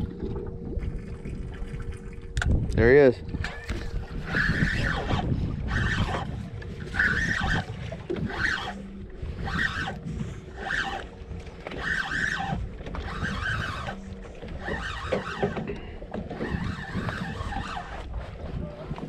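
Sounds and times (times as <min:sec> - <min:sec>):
water noise: 0:00.0 - 0:19.0
wind: 0:00.0 - 0:19.0
fishing reel cranking: 0:03.4 - 0:08.8, 0:09.4 - 0:18.1.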